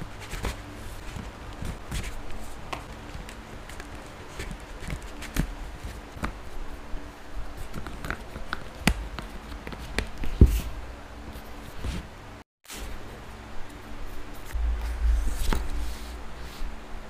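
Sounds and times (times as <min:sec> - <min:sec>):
heavy low knock: 0:14.6 - 0:16.3.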